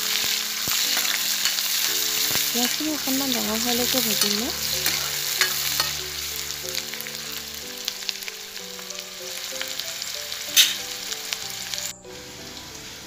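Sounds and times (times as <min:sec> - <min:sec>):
onions sizzling in oil: 0:00.0 - 0:13.0
spatula scraping a pan: 0:04.2 - 0:06.2.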